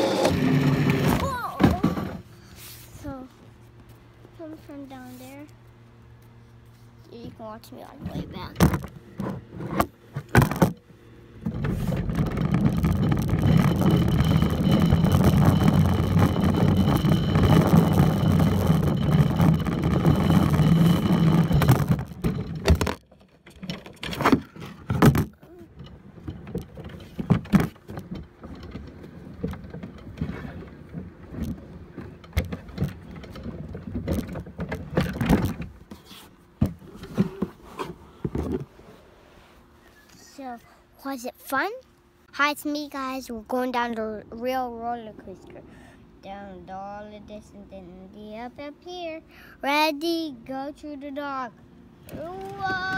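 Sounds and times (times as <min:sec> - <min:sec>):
roller coaster cart rumbling: 0:00.0 - 0:02.3, 0:11.4 - 0:35.9, 0:52.1 - 0:52.9
knocks and clatter: 0:11.4 - 0:35.8.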